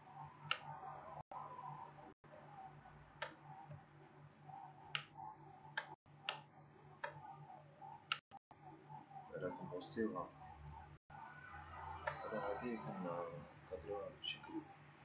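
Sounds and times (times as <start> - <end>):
computer mouse clicking: 4.6 - 8.2.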